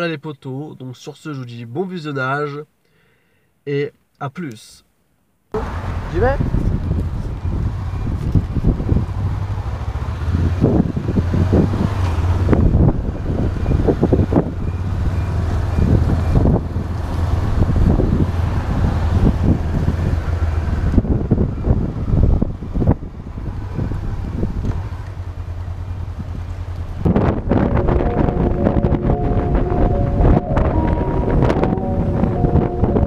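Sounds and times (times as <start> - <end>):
motorcycle engine running: 5.6 - 13.2, 23.0 - 30.3
wind buffeting microphone: 5.6 - 25.0, 25.8 - 33.0.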